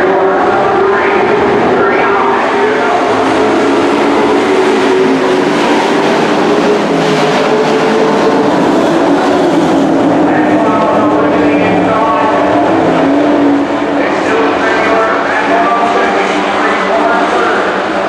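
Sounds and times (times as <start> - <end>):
race truck engines at speed: 0.0 - 18.0.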